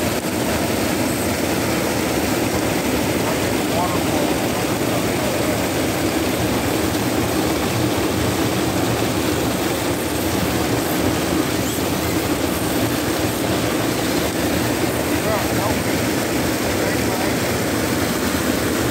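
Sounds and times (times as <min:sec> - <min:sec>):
waterfall roaring: 0:00.0 - 0:18.9.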